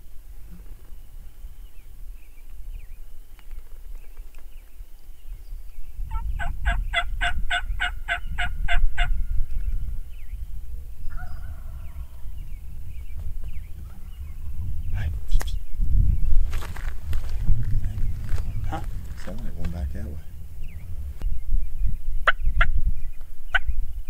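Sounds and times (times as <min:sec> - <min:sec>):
wild turkey yelping: 0:06.1 - 0:09.2.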